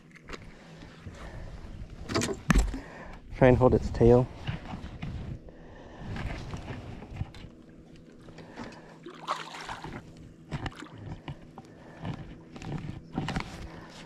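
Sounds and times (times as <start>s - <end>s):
water splashing against boat: 6.0s - 14.0s.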